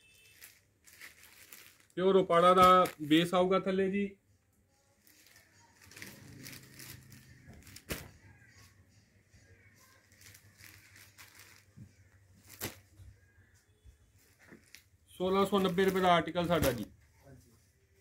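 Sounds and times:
fabric rustling and crinkling: 0.0 - 3.4, 4.8 - 8.8, 9.6 - 13.4, 14.1 - 17.2.

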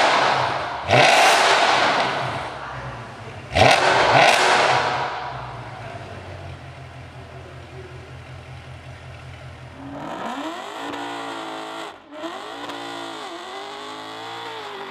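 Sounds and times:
car engine accelerating: 0.0 - 14.9
car engine idling: 0.0 - 14.9.

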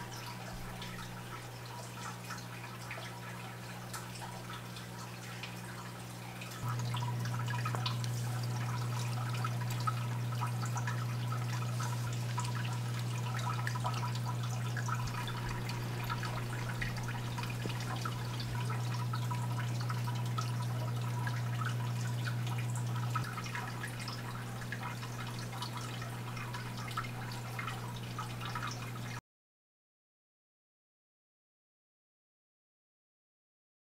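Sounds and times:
steady low hum: 0.0 - 29.2
water trickling and dripping: 0.0 - 29.2.

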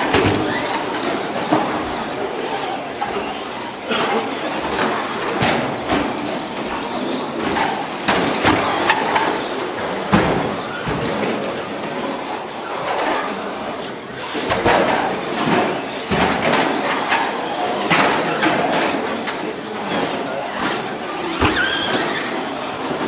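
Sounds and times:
toy car motors whining: 0.0 - 10.1, 10.7 - 23.0.

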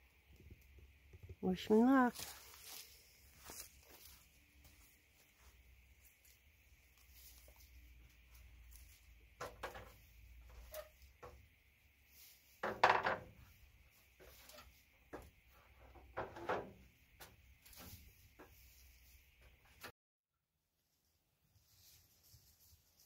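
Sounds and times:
tools knocking and clunking: 9.4 - 11.5, 12.6 - 13.5, 14.5 - 17.4.

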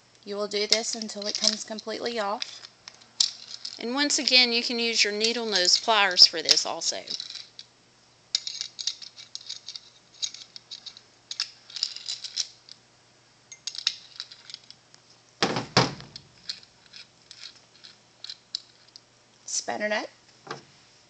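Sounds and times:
light metallic clicks and rattles: 0.5 - 4.5, 8.3 - 12.8, 13.5 - 14.8
heavier knocks: 15.4 - 16.2.

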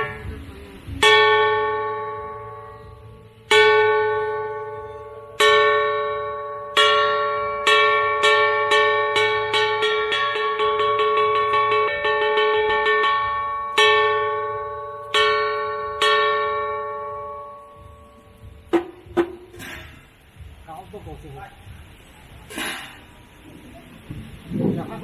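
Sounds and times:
gong struck with mallet: 0.0 - 19.9.

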